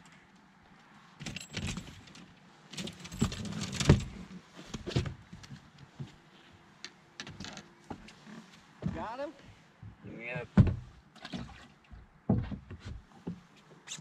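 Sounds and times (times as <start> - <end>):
fishing gear rattling and knocking: 1.2 - 5.5.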